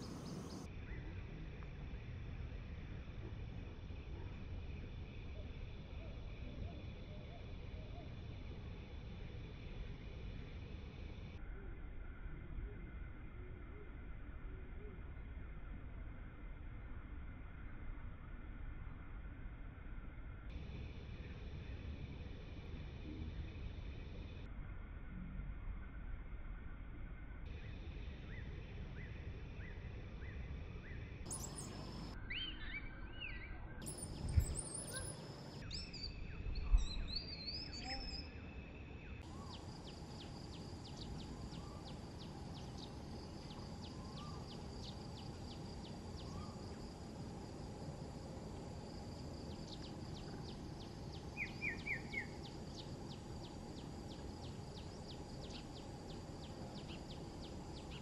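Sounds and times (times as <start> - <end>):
birds chirping: 0.0 - 0.7, 31.3 - 46.6, 49.6 - 58.0
insects calling: 0.0 - 14.0, 27.5 - 58.0
low steady rumble: 0.0 - 58.0.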